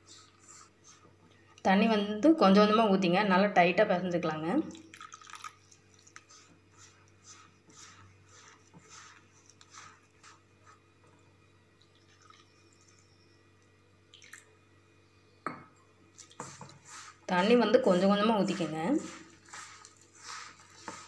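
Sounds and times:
fingers squishing dough in a bowl: 5.6 - 11.0, 16.2 - 21.0.

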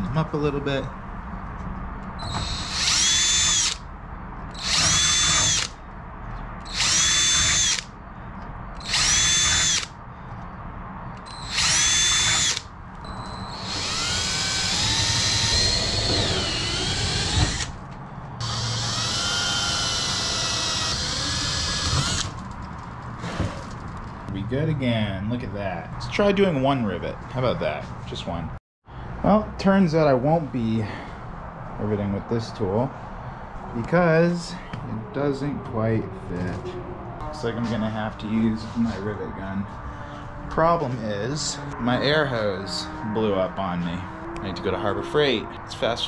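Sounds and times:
cordless drill drilling metal: 2.2 - 3.8, 4.5 - 5.8, 6.7 - 7.9, 8.8 - 9.9, 11.2 - 17.8, 18.4 - 22.4.

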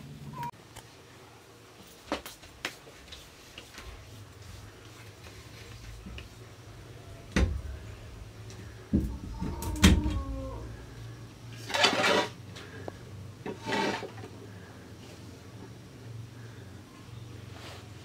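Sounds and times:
metal scraping: 11.5 - 12.4, 13.4 - 14.3.

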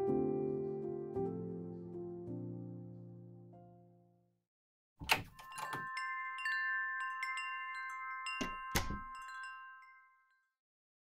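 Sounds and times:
wind chimes tinkling: 5.3 - 10.6.

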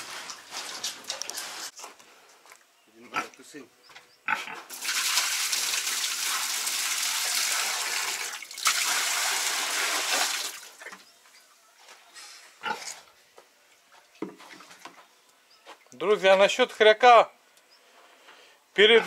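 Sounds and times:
faint pig sounds: 3.0 - 3.4, 4.2 - 4.7, 12.1 - 13.1
water pouring into a trough: 4.7 - 10.8.

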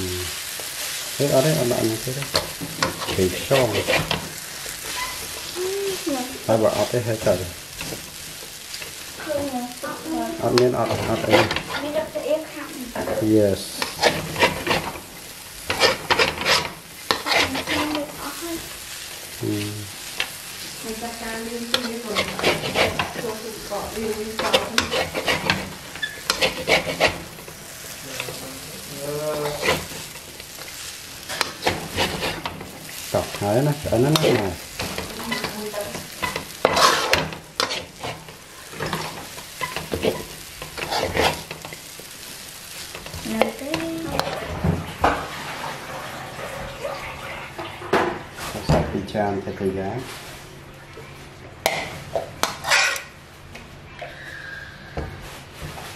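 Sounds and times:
food sizzling in a pan: 0.0 - 55.9
metal spatula scraping a wok: 0.7 - 9.1, 10.3 - 18.5, 21.2 - 46.6, 51.7 - 53.2.

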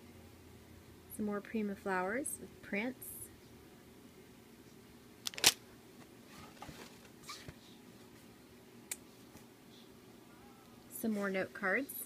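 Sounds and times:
packaging crinkling: 5.2 - 5.6.

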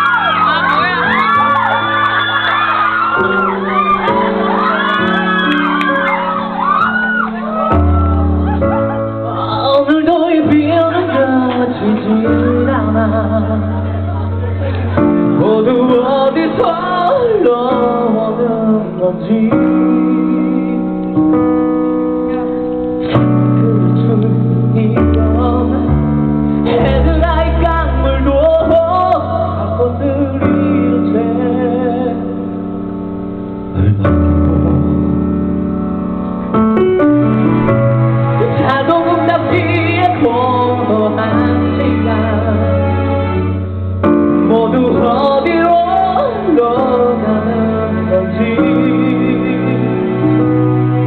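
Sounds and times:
held accompaniment chords: 0.0 - 51.0
person singing through pa: 9.3 - 14.0, 15.3 - 21.2, 23.4 - 32.5, 38.4 - 43.0, 44.1 - 50.5.

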